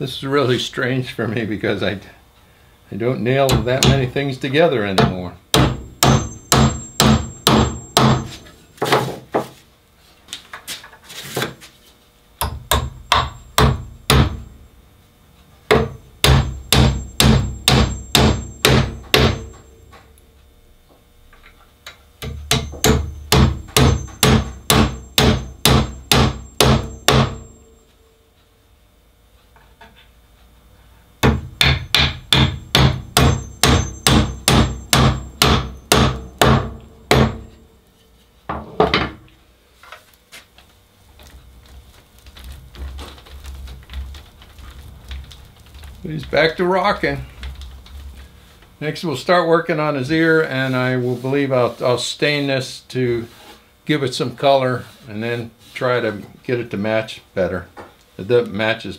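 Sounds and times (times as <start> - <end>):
hammer striking nails into wood: 3.5 - 4.1, 5.0 - 9.0, 12.4 - 14.5, 15.7 - 19.6, 22.2 - 27.5, 31.2 - 37.5.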